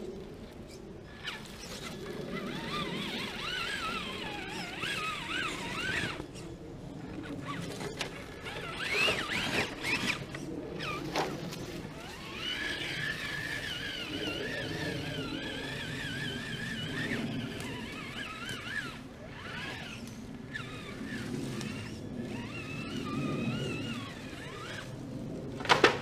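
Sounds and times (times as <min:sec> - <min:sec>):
electric motor and gears whining: 0:00.0 - 0:26.0.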